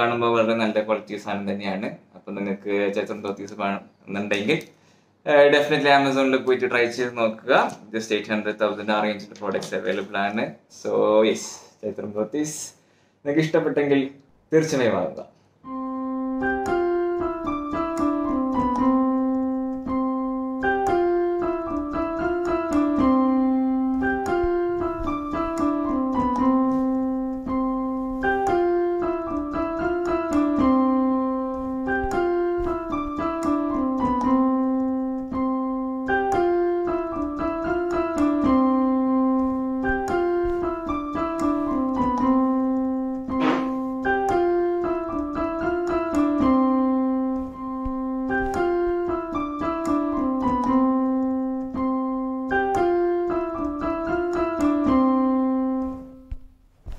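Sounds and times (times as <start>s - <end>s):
gentle piano music: 15.7s - 56.5s.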